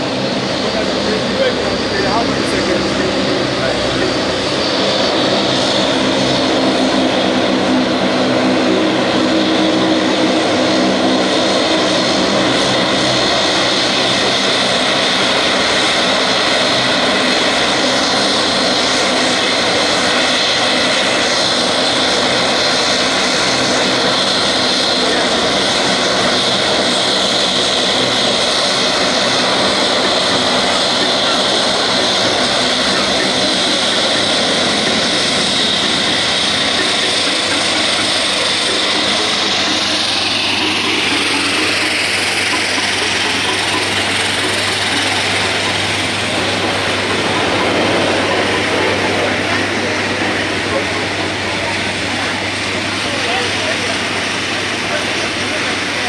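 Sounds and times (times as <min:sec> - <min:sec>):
turboprop airliner taxiing: 0:00.0 - 0:56.0.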